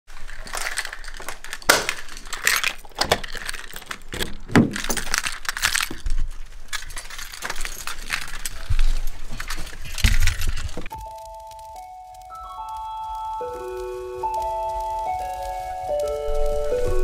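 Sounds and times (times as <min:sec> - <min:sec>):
keys jangling: 0:00.3 - 0:08.6.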